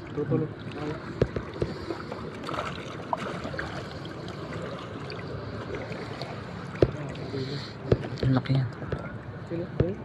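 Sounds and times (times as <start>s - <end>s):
seawater sloshing around wading legs: 0.6s - 8.2s.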